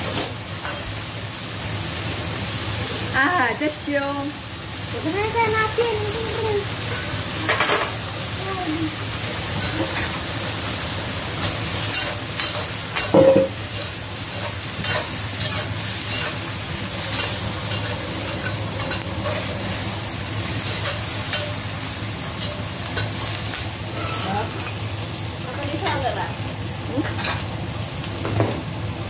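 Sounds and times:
food sizzling in hot oil: 0:00.0 - 0:29.0
metal spatula scraping a pan: 0:11.8 - 0:19.6, 0:23.9 - 0:24.8.

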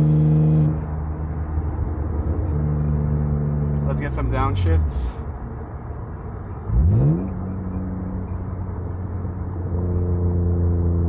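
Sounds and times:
car engine droning in cabin: 0:00.0 - 0:11.0.

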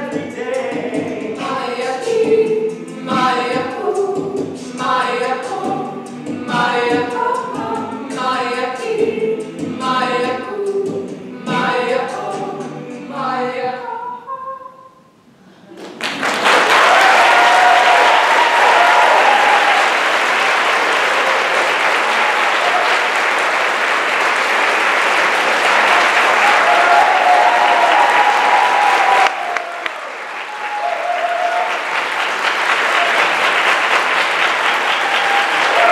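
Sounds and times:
audience applauding: 0:15.8 - 0:35.9.

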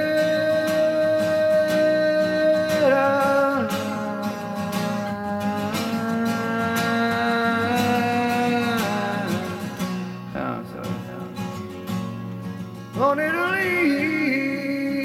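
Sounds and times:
song with guitar: 0:00.0 - 0:15.0.

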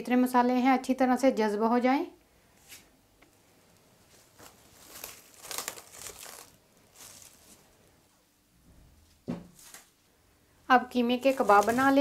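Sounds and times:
cling film rustling: 0:04.0 - 0:08.0, 0:09.3 - 0:10.0, 0:11.0 - 0:12.0.

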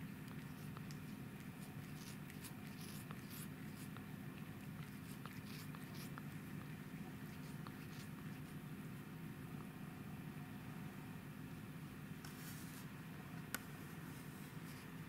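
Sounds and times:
cat snuffling: 0:00.0 - 0:08.7
steady low hum: 0:00.0 - 0:15.0.

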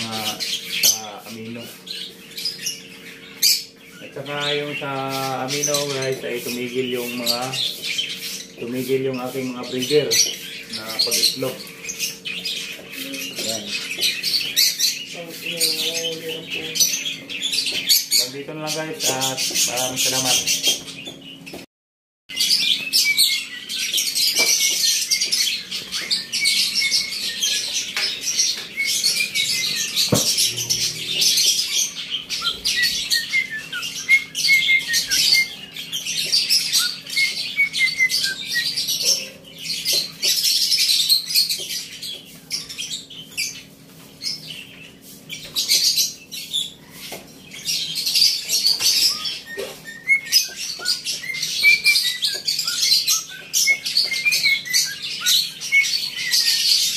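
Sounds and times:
birds chirping and chattering: 0:00.0 - 0:21.7, 0:22.3 - 0:56.9
sharp knock: 0:30.1 - 0:30.4.

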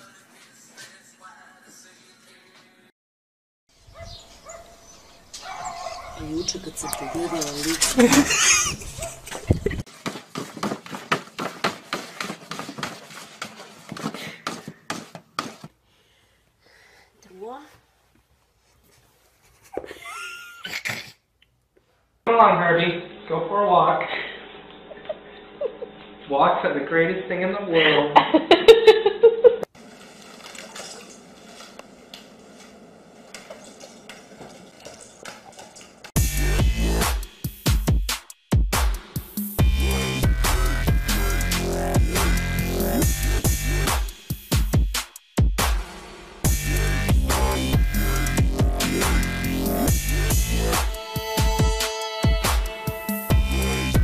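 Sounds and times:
electronic music with a beat: 0:36.2 - 0:54.0.

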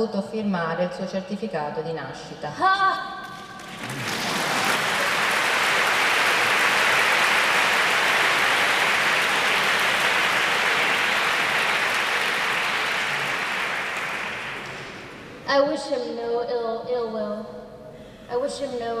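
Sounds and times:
large audience applauding: 0:03.2 - 0:15.4.

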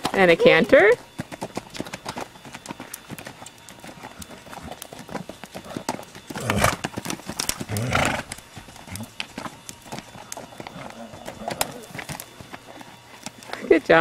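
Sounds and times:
hoofbeats on dirt: 0:00.0 - 0:14.0.

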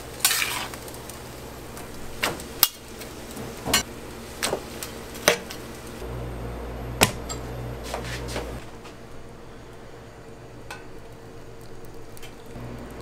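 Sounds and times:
metal pans and spatula clanking: 0:00.2 - 0:00.8
spatula scraping onions into pans: 0:00.2 - 0:01.0.

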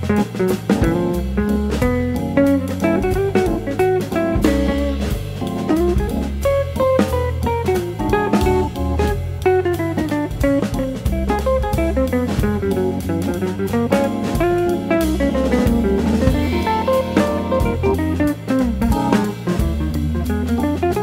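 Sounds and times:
bass: 0:00.0 - 0:21.0
drum kit beat: 0:00.0 - 0:21.0
plucked guitar: 0:00.0 - 0:21.0.

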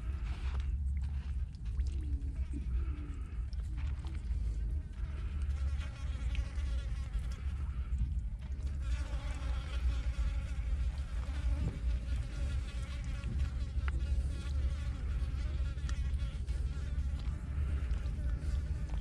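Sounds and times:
wet clicks of fish in mud: 0:00.0 - 0:08.7, 0:15.7 - 0:19.0
flies buzzing: 0:08.7 - 0:19.0.

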